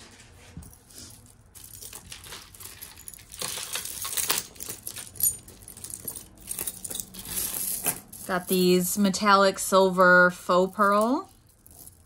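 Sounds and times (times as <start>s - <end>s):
rustling: 0.0s - 8.6s
metal chains and beads clinking: 0.6s - 12.0s.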